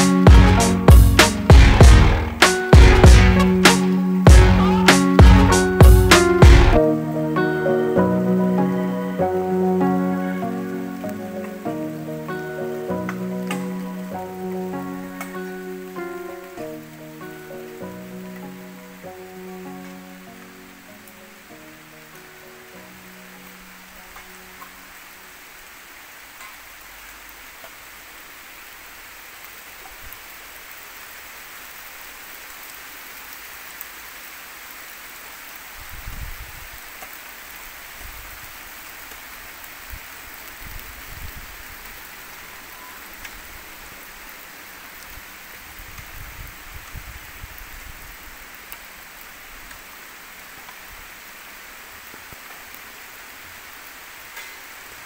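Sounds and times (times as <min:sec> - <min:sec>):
dull low thumps: 0:00.3 - 0:03.6, 0:04.3 - 0:06.8.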